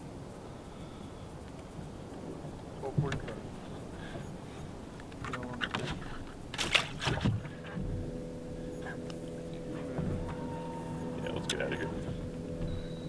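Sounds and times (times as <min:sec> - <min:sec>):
knocks on boat deck: 0:05.7 - 0:13.0
electric motor hum: 0:06.4 - 0:13.0.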